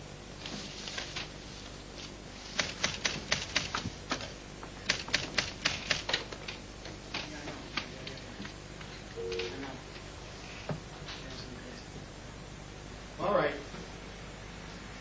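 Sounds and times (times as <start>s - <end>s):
typewriter keys clacking: 2.6s - 8.2s.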